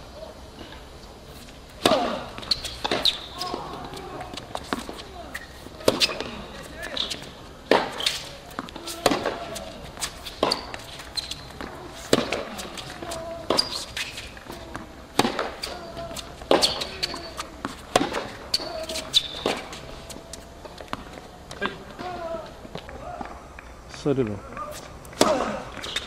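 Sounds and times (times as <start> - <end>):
tennis ball hit by rackets: 1.8 - 23.3, 25.1 - 26.0.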